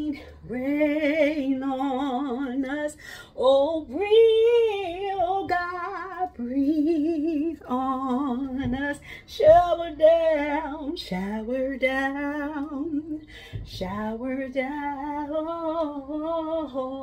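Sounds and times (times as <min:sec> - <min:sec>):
woman singing unaccompanied: 0:00.0 - 0:17.0.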